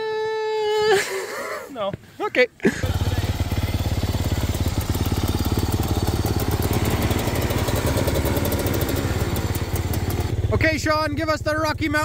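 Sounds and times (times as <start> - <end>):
snowmobile engine idling: 2.6 - 12.0.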